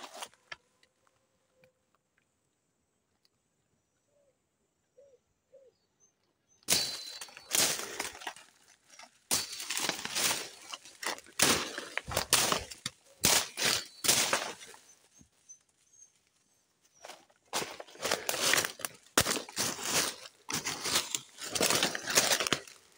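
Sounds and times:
footsteps crunching through dry leaves: 0:00.0 - 0:00.4, 0:06.7 - 0:22.9
brushing past undergrowth: 0:00.0 - 0:00.6, 0:06.7 - 0:22.9.

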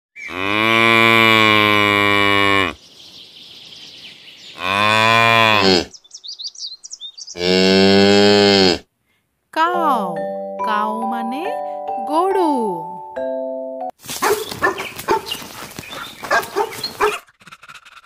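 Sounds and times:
cow mooing: 0:00.3 - 0:02.8, 0:04.6 - 0:05.9, 0:07.4 - 0:08.8
high bird chirps: 0:02.8 - 0:04.8, 0:05.9 - 0:07.5, 0:14.3 - 0:17.2.

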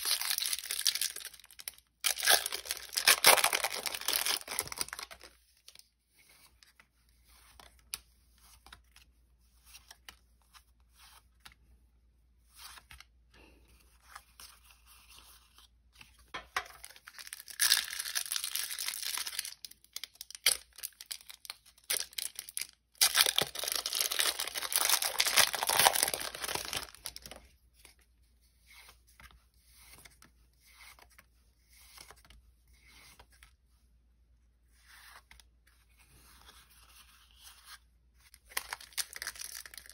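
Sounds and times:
foil wrappers tearing and crinkling: 0:00.0 - 0:05.3, 0:16.9 - 0:27.4, 0:38.5 - 0:39.9
cards being handled: 0:12.4 - 0:33.6.

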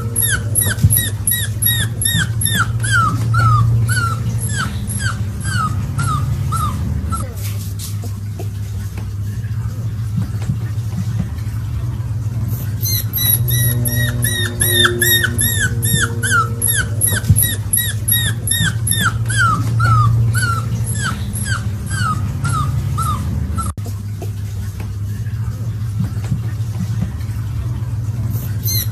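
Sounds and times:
puppy whimpering: 0:00.0 - 0:07.6, 0:12.5 - 0:23.8, 0:28.3 - 0:28.9
steady low hum: 0:00.0 - 0:28.9.

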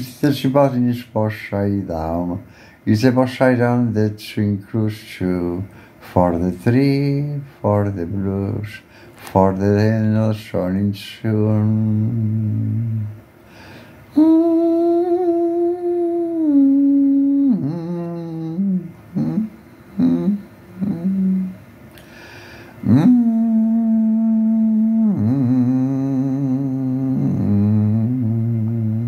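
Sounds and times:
breath: 0:02.5 - 0:02.8, 0:05.7 - 0:06.0, 0:08.9 - 0:09.2, 0:13.4 - 0:14.1, 0:22.0 - 0:22.8
man humming a slow tune: 0:11.2 - 0:13.1, 0:14.1 - 0:21.6, 0:22.8 - 0:29.0.

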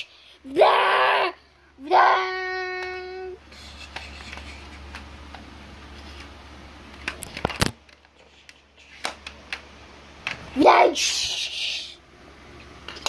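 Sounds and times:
phone handling rustling: 0:06.9 - 0:08.2.

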